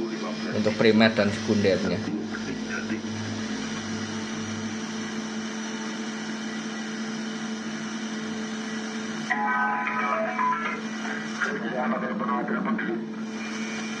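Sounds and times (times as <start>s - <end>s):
voice or music through radio noise: 0.0s - 5.4s, 9.3s - 13.3s
radio static hiss: 0.0s - 14.0s
loudspeaker hum: 1.0s - 5.8s.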